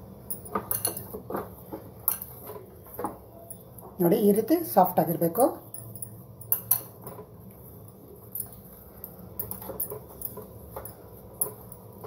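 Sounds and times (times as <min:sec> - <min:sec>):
dough kneading squishes: 0:00.5 - 0:05.7.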